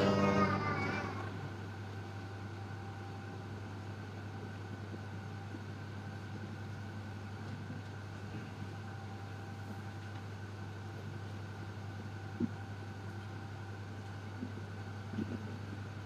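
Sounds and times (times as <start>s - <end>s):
faint high tones: 0.0s - 1.6s
steady low hum: 0.0s - 16.0s.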